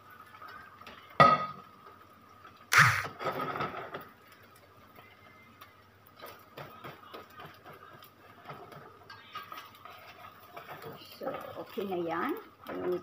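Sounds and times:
spatula scraping in a wok: 0:08.3 - 0:12.1.

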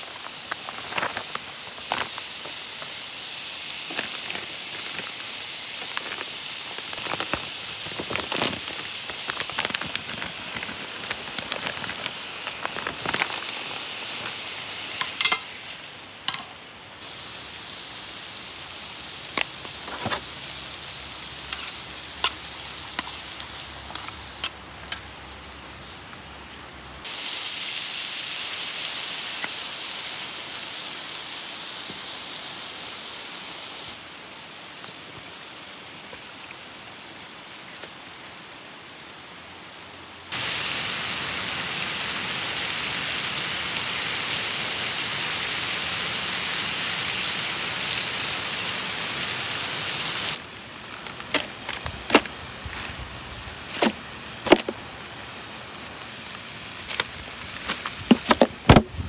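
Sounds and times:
stir-fry sizzling in a wok: 0:00.0 - 0:26.0, 0:27.0 - 0:34.7, 0:40.3 - 0:58.6
metal spoon clinking and scraping: 0:15.0 - 0:15.6.

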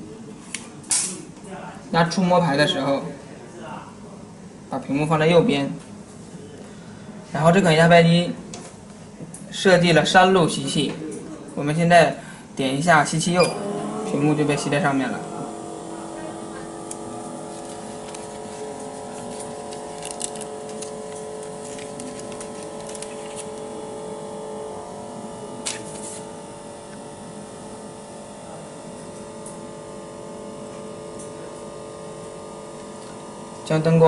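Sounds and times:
press machine humming: 0:12.7 - 0:34.0.

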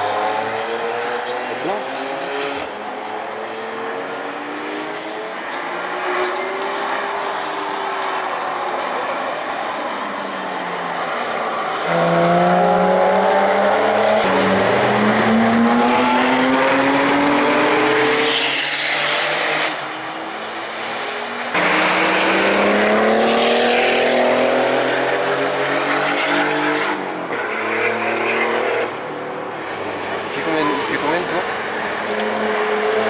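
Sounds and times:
sports car engine accelerating hard: 0:09.6 - 0:29.0.

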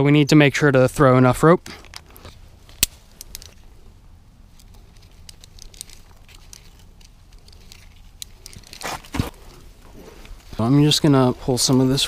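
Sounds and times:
faint clicks of metal hardware: 0:01.7 - 0:03.7
rustling of webbing: 0:01.9 - 0:12.0.

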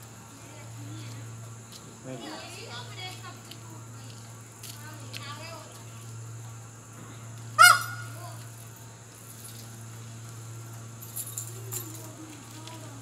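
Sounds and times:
steady low hum: 0:00.0 - 0:13.0
peacock honking call: 0:07.5 - 0:08.4.

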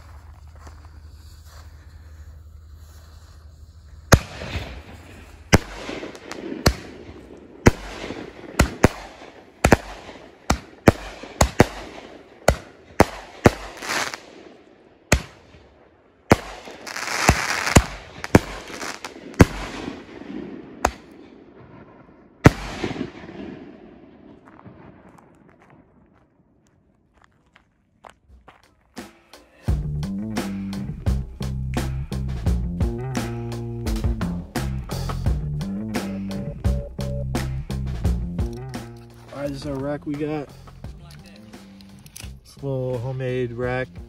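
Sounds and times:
firework crackling: 0:00.9 - 0:14.4, 0:16.3 - 0:20.1
firework bangs: 0:04.0 - 0:15.7, 0:16.3 - 0:25.9.

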